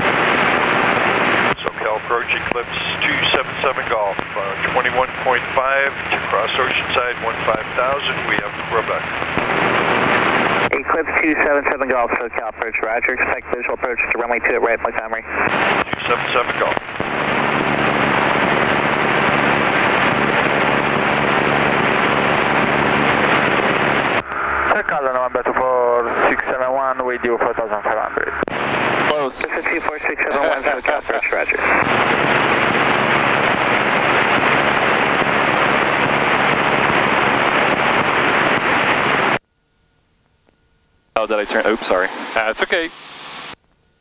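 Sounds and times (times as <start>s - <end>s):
airplane engine and propeller: 0.1s - 27.7s, 41.2s - 43.2s.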